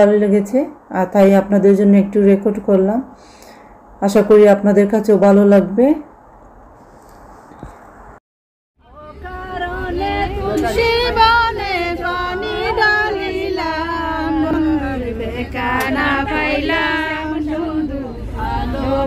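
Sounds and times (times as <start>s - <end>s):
low rumble of moving coach: 8.8s - 19.0s
women singing together: 8.8s - 19.0s.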